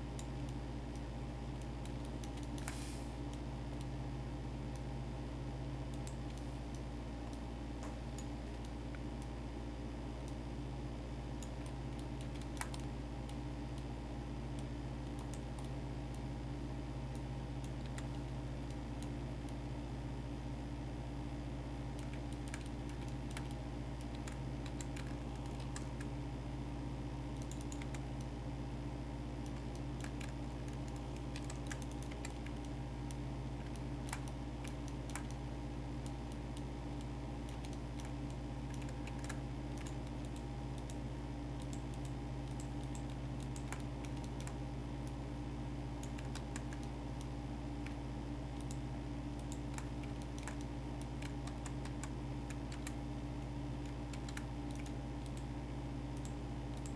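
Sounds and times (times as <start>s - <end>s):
low electrical hum: 0.0s - 56.9s
keyboard keys clicking: 29.5s - 32.8s.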